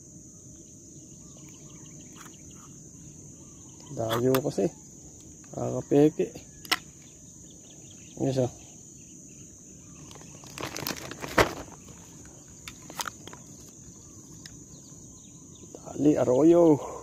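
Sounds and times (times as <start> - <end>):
insects chirring: 0.0 - 17.0
fishing gear clicks and knocks: 10.1 - 13.8.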